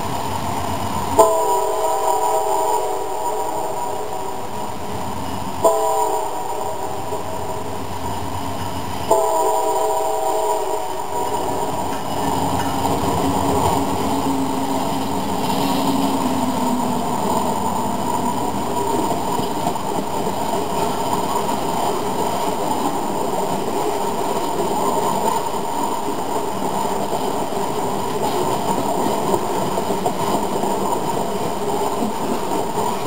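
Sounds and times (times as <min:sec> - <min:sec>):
low locomotive tone: 0:00.0 - 0:33.0
model train wheels clattering: 0:11.1 - 0:33.0.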